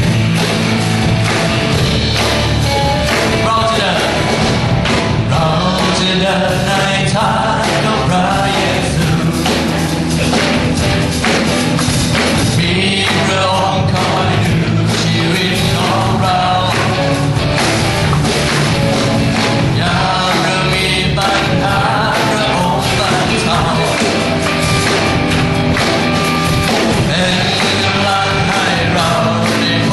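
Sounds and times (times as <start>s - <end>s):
band playing with steady beat: 0.0s - 29.9s
person singing into a microphone: 3.2s - 4.5s, 5.1s - 9.8s, 12.4s - 17.3s, 19.6s - 24.3s, 27.0s - 29.9s.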